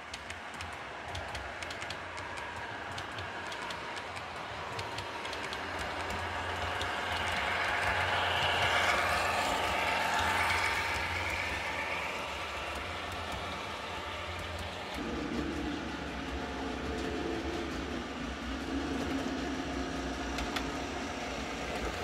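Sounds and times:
model train whirring on track: 0:00.0 - 0:22.0.

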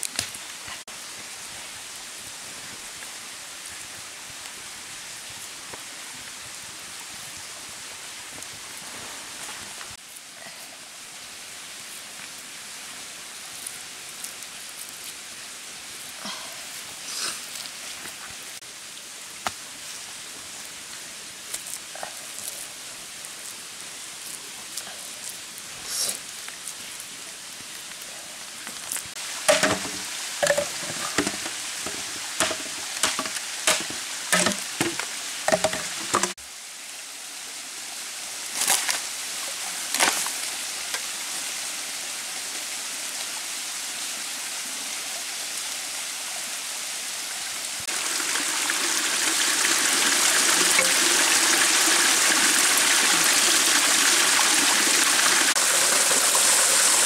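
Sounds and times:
steady hiss: 0:00.0 - 0:57.0
waterfall rushing: 0:29.1 - 0:36.4, 0:47.6 - 0:57.0
knocks: 0:29.5 - 0:36.4.

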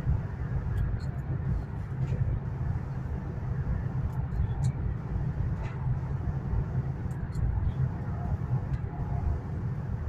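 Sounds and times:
train cabin low rumble: 0:00.0 - 0:10.0.

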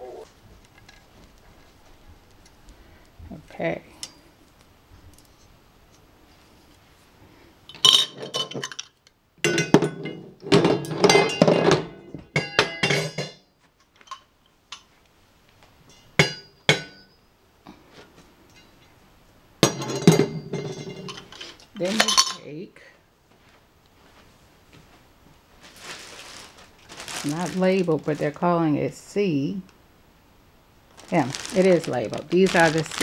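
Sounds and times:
metal tubes clinking and clattering: 0:07.7 - 0:14.9, 0:19.6 - 0:22.6.

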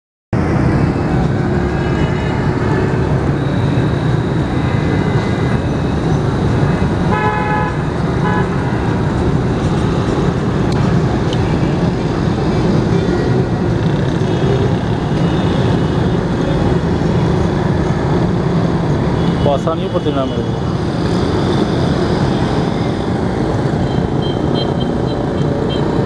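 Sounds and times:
traffic rumble: 0:00.3 - 0:26.0
car horn toots: 0:07.1 - 0:08.7.

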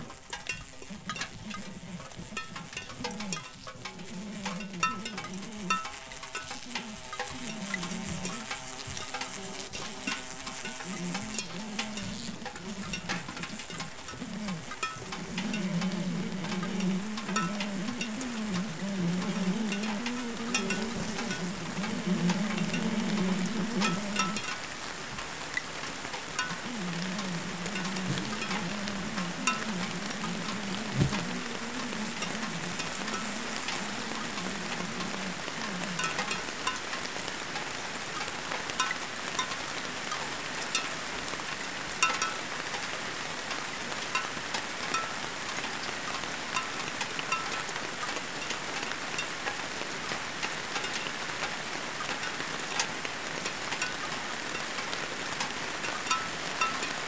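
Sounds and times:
scattered clicks: 0:00.0 - 0:41.0
low wavering buzz: 0:00.0 - 0:42.7
crackling hiss: 0:00.0 - 0:57.0.

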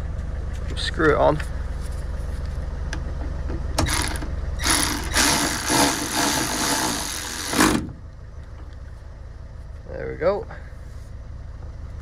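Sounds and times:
electric ratchet running: 0:03.8 - 0:07.8.

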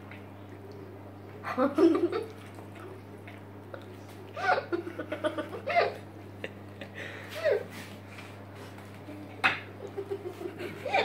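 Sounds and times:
steady low hum: 0:00.0 - 0:11.0
girls giggling: 0:04.4 - 0:07.7, 0:09.0 - 0:11.0.

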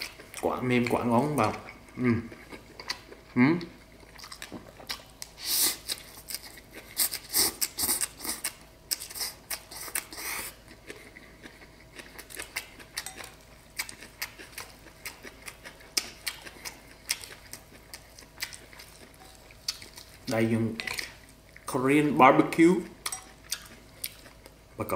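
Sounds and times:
wet smacking chewing: 0:03.8 - 0:21.7.

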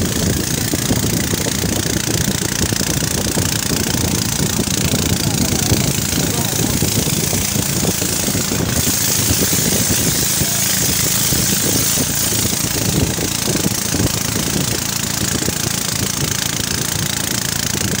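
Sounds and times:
boat engine running: 0:00.0 - 0:18.0.

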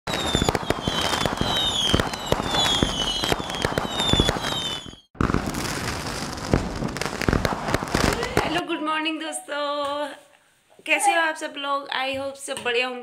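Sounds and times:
fireworks bangs and crackles: 0:00.1 - 0:08.6
fireworks whistles: 0:00.1 - 0:08.6.

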